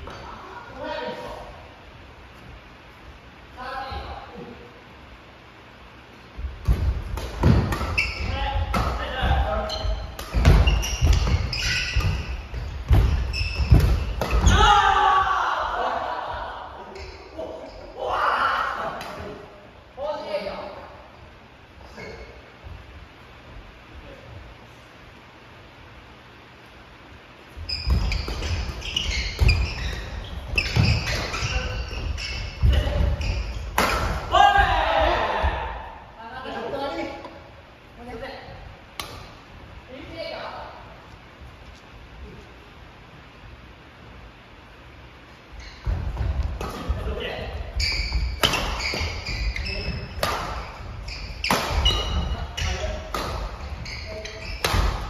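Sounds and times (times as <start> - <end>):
racket hitting shuttlecock: 6.6 - 14.6, 33.7 - 34.3, 48.2 - 49.4, 50.1 - 50.8, 51.4 - 53.8, 54.6 - 55.0
shoes squeaking: 7.3 - 14.7, 16.9 - 18.0, 27.5 - 34.4, 45.4 - 55.0.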